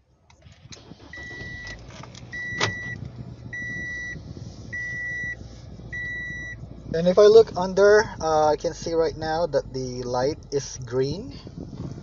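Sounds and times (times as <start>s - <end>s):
car engine starting and idling: 0.0s - 12.0s
dashboard warning chime: 1.2s - 3.0s, 3.6s - 6.6s.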